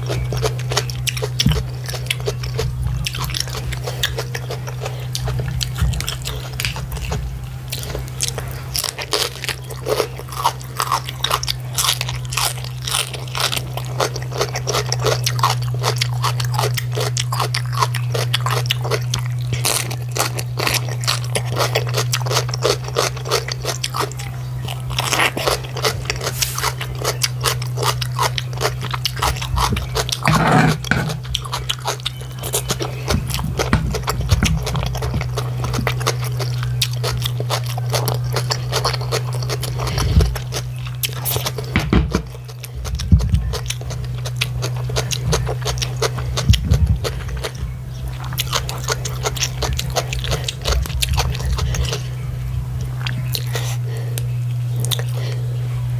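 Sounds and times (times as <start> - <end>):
crunching and chewing cabbage: 0.0 - 55.9
steady low hum: 0.0 - 55.9.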